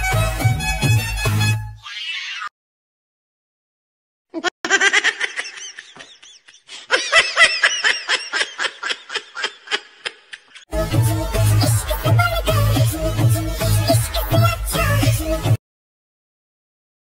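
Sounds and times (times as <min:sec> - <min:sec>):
high-pitched laughter: 0:04.4 - 0:10.7
song music: 0:10.7 - 0:15.6.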